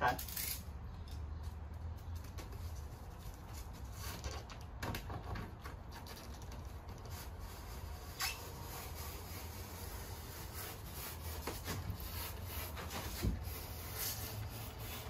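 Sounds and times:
knife scoring foam board: 0:07.1 - 0:15.0.

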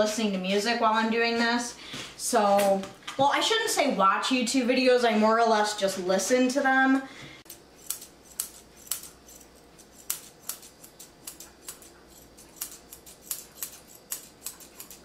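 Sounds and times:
shears snipping fur: 0:07.4 - 0:15.0.

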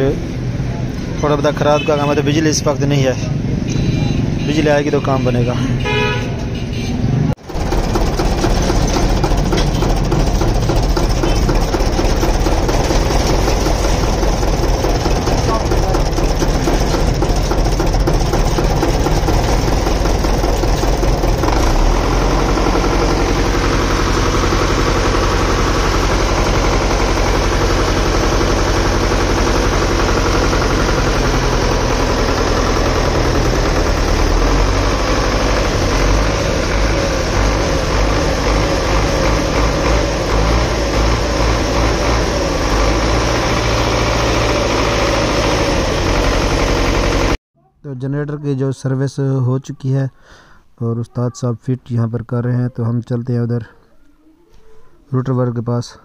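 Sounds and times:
mechanical clatter: 0:07.4 - 0:40.7
diesel engine idling: 0:07.4 - 0:47.4.

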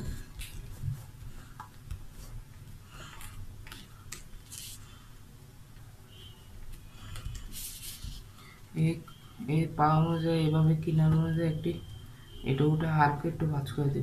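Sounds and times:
paper rustling and crinkling: 0:03.0 - 0:04.8, 0:07.1 - 0:08.3.

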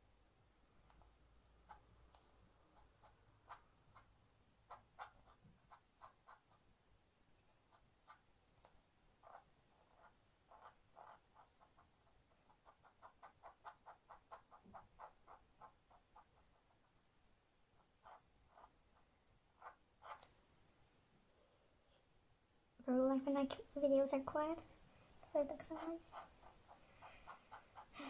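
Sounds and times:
pen nib scratching on paper: 0:00.8 - 0:06.7, 0:07.5 - 0:17.0, 0:17.8 - 0:20.4, 0:25.3 - 0:27.9.

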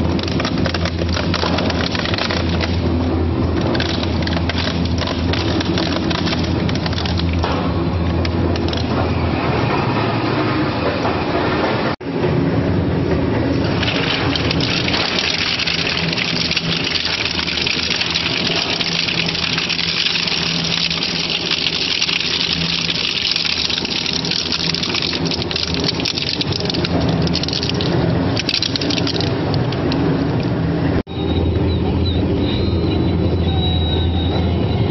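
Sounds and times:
shredder crunching wheels: 0:00.0 - 0:10.2, 0:13.4 - 0:30.6
machine drive hum: 0:00.0 - 0:34.9.

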